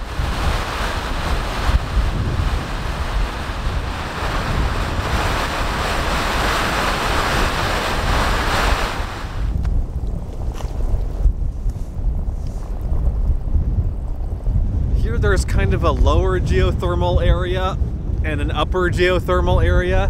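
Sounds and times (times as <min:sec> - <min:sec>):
geothermal vent hissing: 0:00.0 - 0:09.6
wind buffeting microphone: 0:00.0 - 0:20.0.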